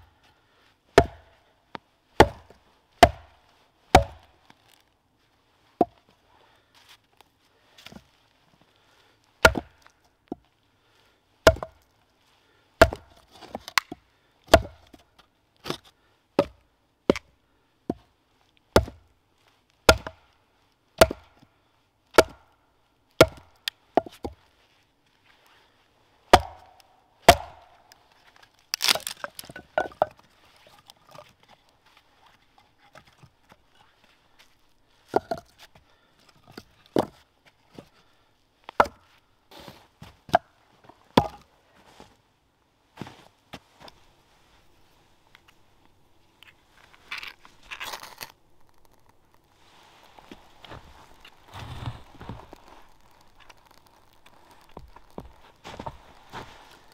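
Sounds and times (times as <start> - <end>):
wood knocking on hatchet blade: 1.0 - 1.3, 2.2 - 3.3, 3.9 - 4.3, 9.4 - 9.7, 11.5 - 11.8, 12.8 - 14.8, 18.8 - 19.0, 19.9 - 20.2, 21.0 - 21.3, 22.2 - 22.4, 23.2 - 24.4, 26.3 - 27.8, 28.8 - 30.2, 41.2 - 41.4.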